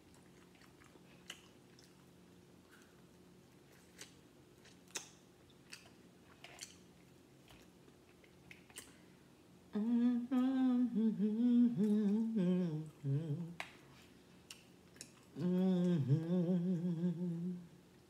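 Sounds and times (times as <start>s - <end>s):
woman humming: 9.7s - 13.6s, 15.4s - 17.8s.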